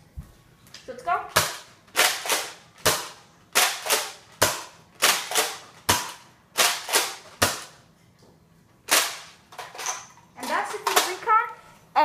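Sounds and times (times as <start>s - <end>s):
toy blaster shots clacking: 1.4s - 7.8s, 8.9s - 9.8s.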